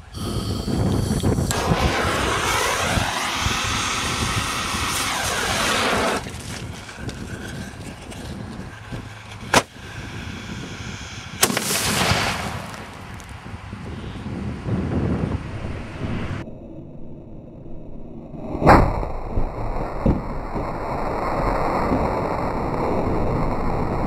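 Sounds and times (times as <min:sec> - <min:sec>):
loud rushing hiss: 0:00.0 - 0:12.9
crackling burst: 0:00.0 - 0:13.5, 0:18.7 - 0:24.0
sharp bangs: 0:01.4 - 0:07.3, 0:08.9 - 0:09.8, 0:11.3 - 0:13.0.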